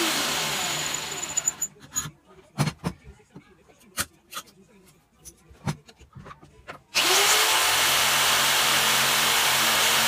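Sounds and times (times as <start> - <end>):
jigsaw cutting wood: 0.0 - 1.4, 7.0 - 10.0.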